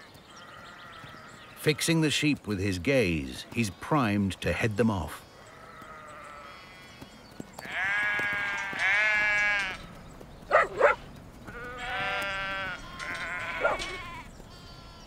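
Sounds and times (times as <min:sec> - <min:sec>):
sheep bleating: 0:05.1 - 0:09.8, 0:11.5 - 0:15.0.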